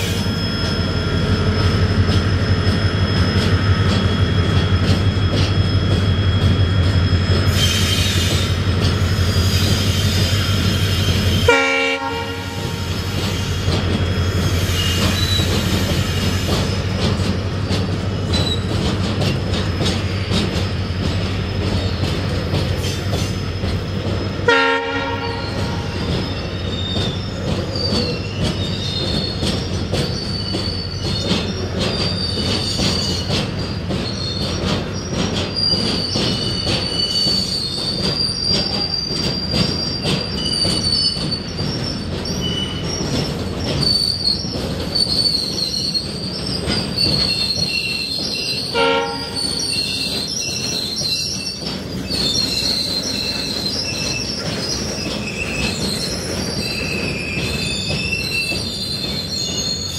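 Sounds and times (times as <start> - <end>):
wheel flange squeal: 0.0 - 11.5, 12.6 - 18.9, 25.2 - 59.9
train wheels rumbling and clattering: 0.0 - 59.9
train horn blasts: 11.4 - 12.9, 24.5 - 25.9, 48.7 - 49.4.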